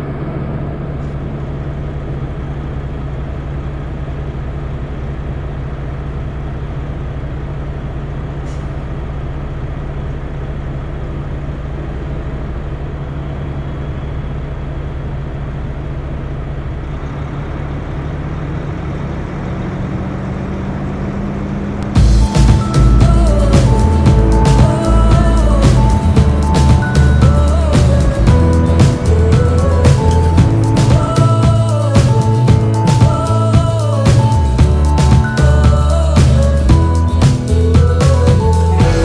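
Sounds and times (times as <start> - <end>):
diesel truck engine running: 0.0 - 39.0
music: 21.8 - 39.0.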